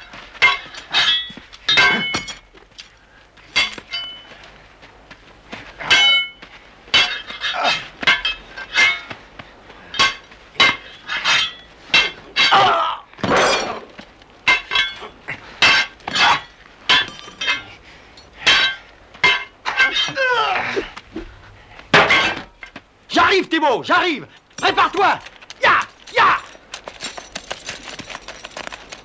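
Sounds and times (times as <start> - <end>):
steel blades clashing: 14.5 - 20.3.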